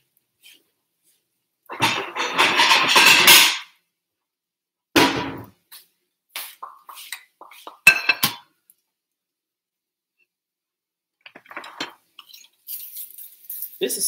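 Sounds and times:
dishes clattering: 1.7 - 3.8, 7.2 - 8.6, 11.3 - 12.5
ceramic plate clinking: 7.7 - 8.5.

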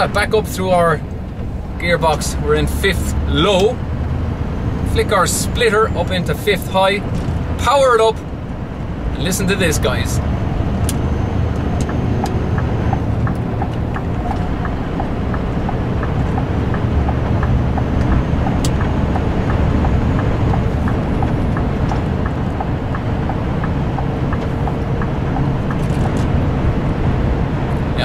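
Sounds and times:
diesel truck engine pulling: 0.0 - 28.0
light regular ticking: 9.2 - 26.8.

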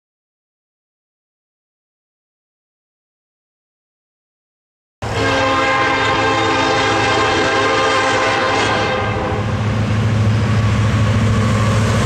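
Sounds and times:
locomotive air horn: 5.0 - 9.6
locomotive engine hum: 5.0 - 12.0
train rumble: 5.0 - 12.0.

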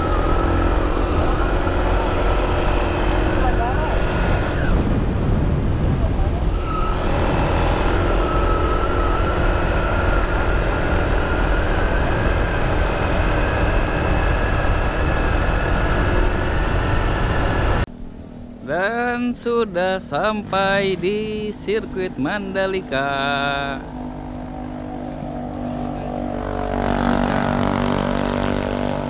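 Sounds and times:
motorbike engine: 0.0 - 29.0
wind rushing over helmet: 3.9 - 8.1.

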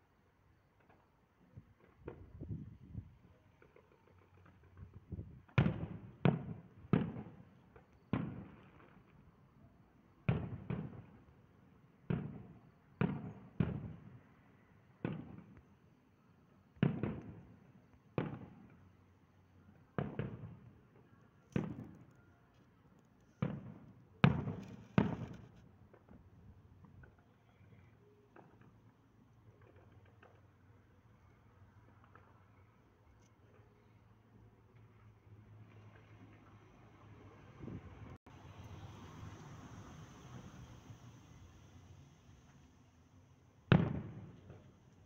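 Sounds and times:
distant fireworks booming: 1.6 - 9.3, 10.2 - 15.7, 16.8 - 18.9, 19.7 - 22.1, 23.3 - 28.9, 43.7 - 44.9.

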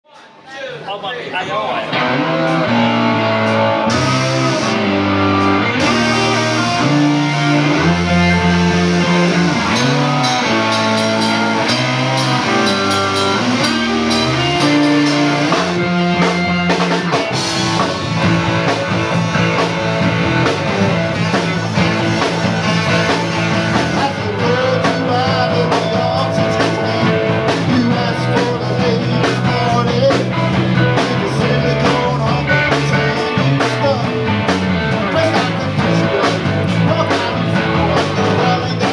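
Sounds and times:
live rock band playing: 1.8 - 38.9
person singing: 2.0 - 17.2, 20.9 - 34.3, 34.9 - 38.9.

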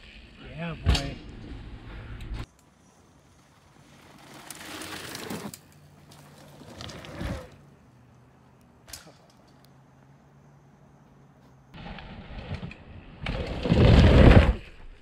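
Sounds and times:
bike tyres rolling over dirt: 2.5 - 8.2, 11.8 - 15.0.

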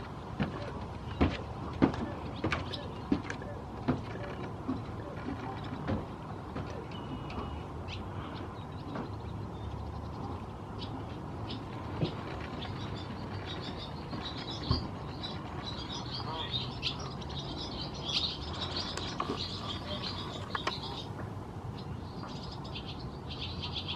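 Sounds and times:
birds chirping: 0.0 - 23.9.

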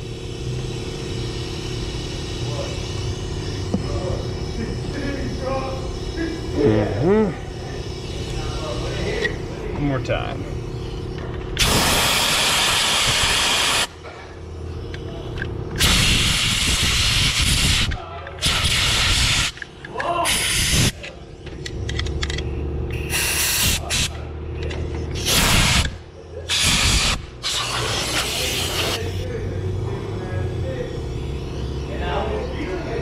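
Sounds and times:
compressed air blow gun hissing: 11.6 - 13.9, 15.8 - 19.6, 23.1 - 23.8.

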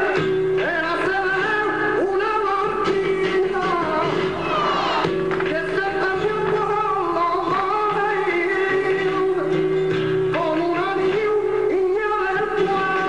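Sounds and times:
person singing with music: 0.0 - 13.0.

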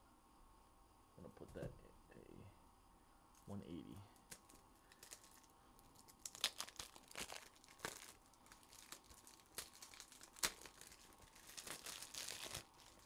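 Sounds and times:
plastic card sleeves rustling: 6.1 - 13.0.

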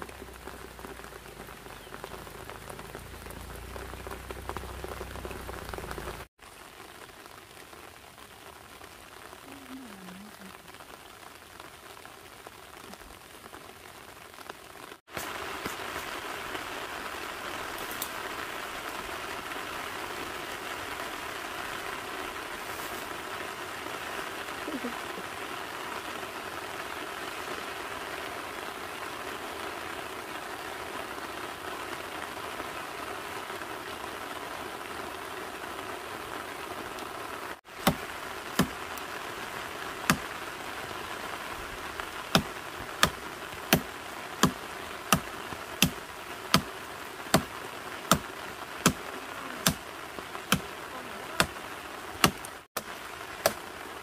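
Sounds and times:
outdoor hiss: 0.0 - 54.0
blade chopping tree branch: 37.8 - 39.0, 40.1 - 40.3, 42.3 - 47.5, 48.1 - 49.0, 49.6 - 49.8, 50.5 - 50.7, 52.2 - 53.7.

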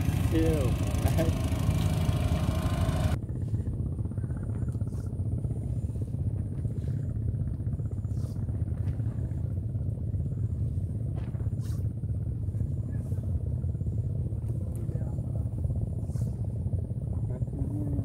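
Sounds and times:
engine running with pulsing rumble: 0.0 - 18.0.

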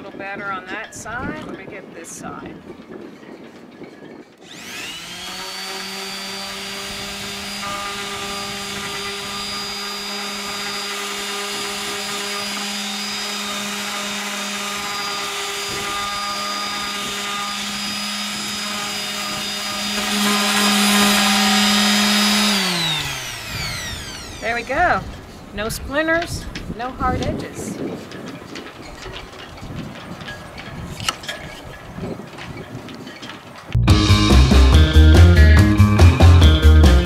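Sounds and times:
sander spinning down whine: 4.4 - 25.4
orbital sander running: 4.4 - 25.6.

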